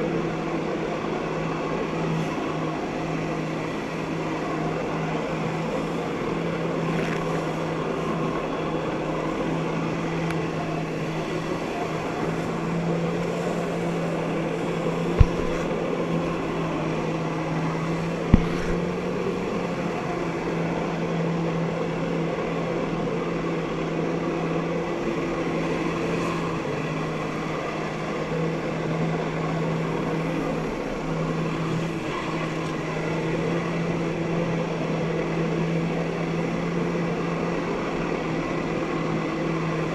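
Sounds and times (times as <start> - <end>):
watercraft engine droning: 0.0 - 39.9
sharp knocks: 15.2 - 15.7, 18.3 - 18.8.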